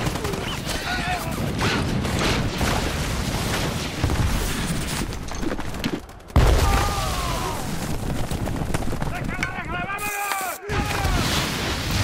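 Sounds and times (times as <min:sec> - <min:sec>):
rapid gunfire: 0:00.0 - 0:04.7, 0:07.4 - 0:09.8.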